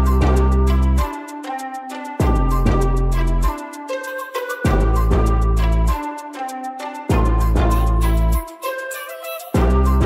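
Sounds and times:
music with heavy bass: 0.0s - 8.5s, 9.6s - 10.0s
ticking beat: 0.0s - 10.0s.

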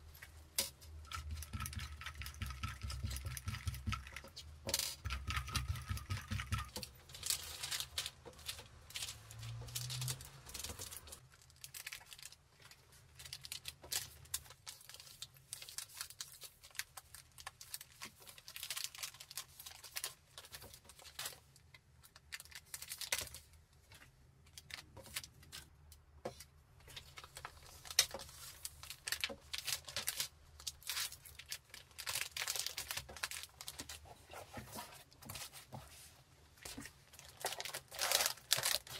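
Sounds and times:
wrapping rustling: 6.0s - 25.8s, 26.4s - 38.9s
lint roller crackling: 36.7s - 38.9s.

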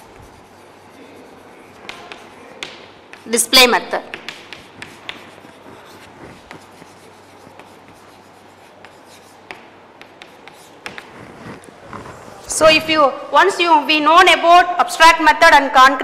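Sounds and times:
chalk scratching on chalkboard: 0.0s - 3.4s, 4.0s - 12.5s
chalk tapping on chalkboard: 0.0s - 12.1s.

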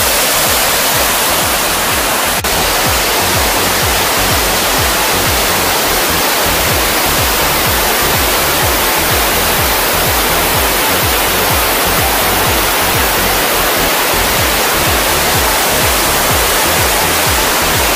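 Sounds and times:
waterfall roaring: 0.0s - 17.9s.

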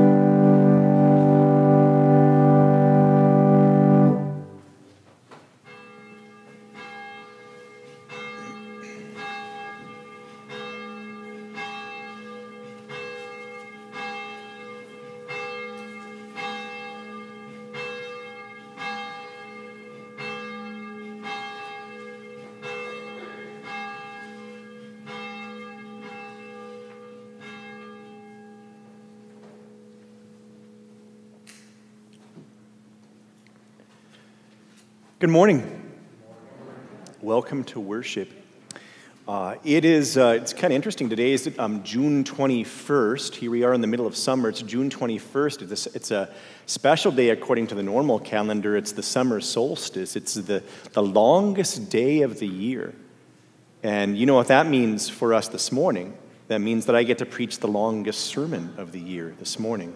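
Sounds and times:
church bell tolling: 0.0s - 4.8s, 5.6s - 36.2s, 37.1s - 53.2s
loud organ chord: 0.0s - 4.8s.

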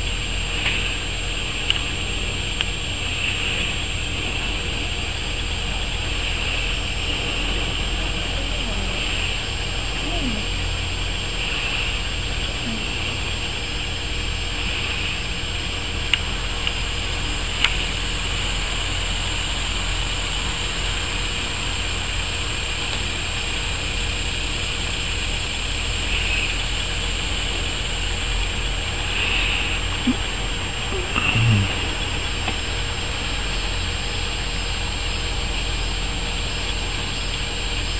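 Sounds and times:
even high hiss: 0.0s - 37.9s
faint clicks: 1.6s - 2.8s, 16.1s - 16.8s.

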